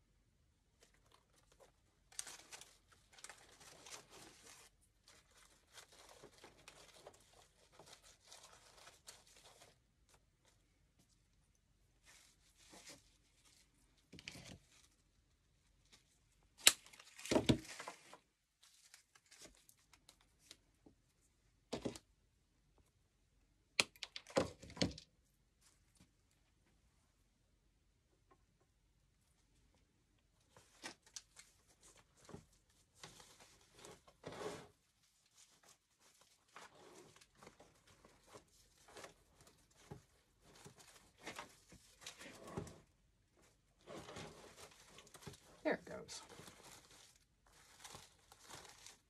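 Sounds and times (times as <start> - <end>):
artificial flowers crinkling: 0.8 - 10.8, 12.0 - 20.8, 30.4 - 49.0.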